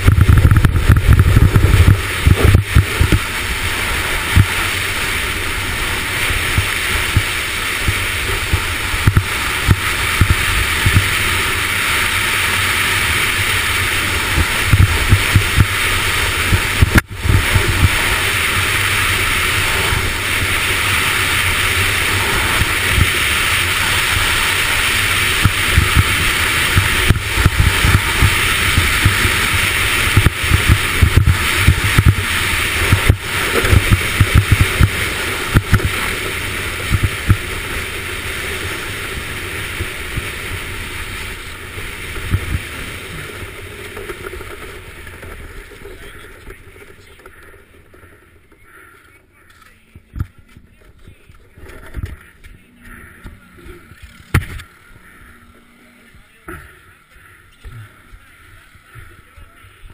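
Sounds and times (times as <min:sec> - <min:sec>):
sled knocks and jolts: 0:00.0 - 0:49.0
sled runners scraping on ice: 0:00.1 - 0:49.7.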